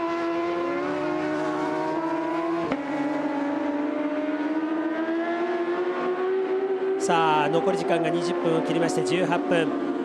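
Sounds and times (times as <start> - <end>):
motorcycle engines at high revs: 0.0 - 10.0.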